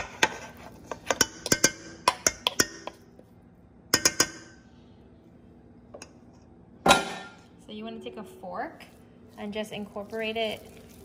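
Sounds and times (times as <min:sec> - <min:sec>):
utensils clinking in metal bowl: 0:00.0 - 0:03.0.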